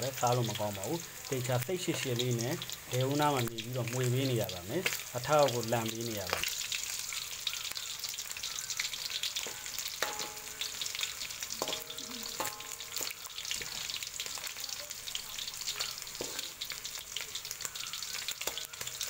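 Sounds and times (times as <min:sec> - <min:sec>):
chicken sizzling in hot oil: 0:00.0 - 0:19.0
metal spatula scraping a wok: 0:09.3 - 0:10.9, 0:11.6 - 0:14.0, 0:15.9 - 0:16.8.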